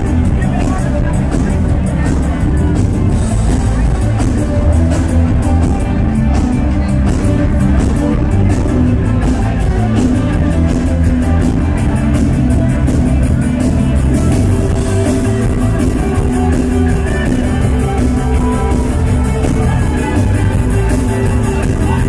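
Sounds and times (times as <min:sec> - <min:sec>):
drums fast beat: 0:00.0 - 0:22.0
guitar: 0:00.0 - 0:22.0
heavy bass: 0:00.0 - 0:22.0
keyboards: 0:00.0 - 0:22.0.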